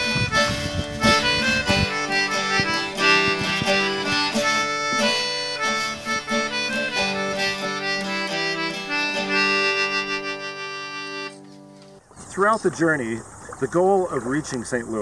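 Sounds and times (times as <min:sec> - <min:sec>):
held melody notes: 0:00.0 - 0:12.0
plucked accompaniment: 0:00.0 - 0:12.0.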